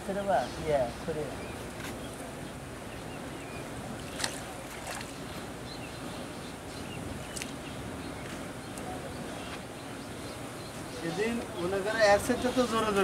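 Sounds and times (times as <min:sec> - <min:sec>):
river water swishing and lapping: 0:01.4 - 0:11.6.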